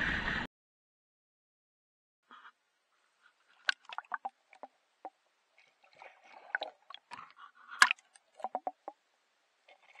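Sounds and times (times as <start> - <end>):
water swishing underwater: 3.1 - 10.0.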